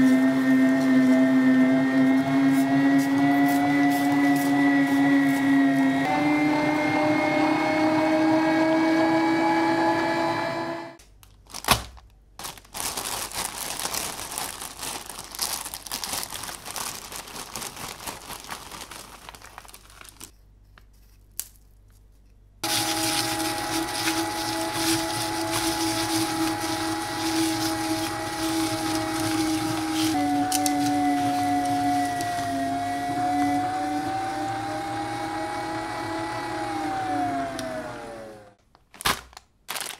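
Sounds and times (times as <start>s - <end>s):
meat grinder motor humming: 0.0s - 11.0s, 22.6s - 38.5s
crackling and crinkling: 11.0s - 34.2s, 38.6s - 39.9s.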